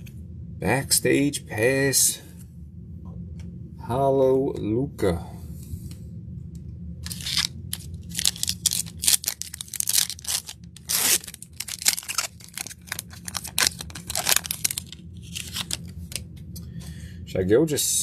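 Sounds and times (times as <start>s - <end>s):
trading cards rustling: 7.0s - 16.2s.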